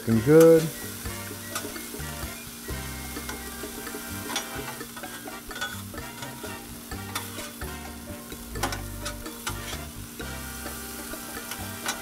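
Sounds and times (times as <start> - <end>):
meat sizzling on a griddle: 0.0 - 12.0
metal spatulas scraping griddle: 3.2 - 12.0.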